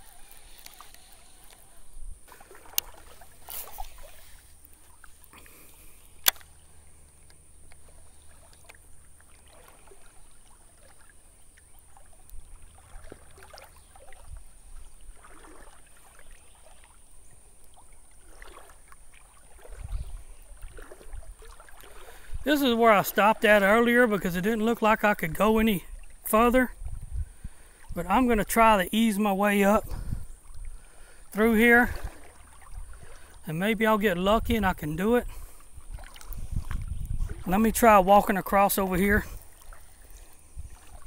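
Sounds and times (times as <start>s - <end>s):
water sloshing around legs: 0.0s - 33.8s, 35.3s - 41.0s
sharp clicks: 6.2s - 6.6s.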